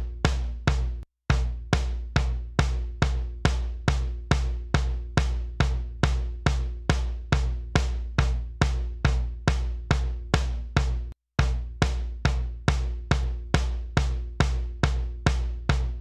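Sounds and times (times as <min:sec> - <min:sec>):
drum beat thumps: 0:00.0 - 0:16.0.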